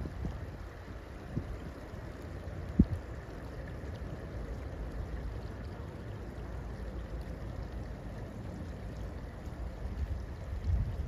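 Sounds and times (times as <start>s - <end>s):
wind buffeting microphone: 0.0s - 1.8s, 2.7s - 3.1s, 9.8s - 11.0s.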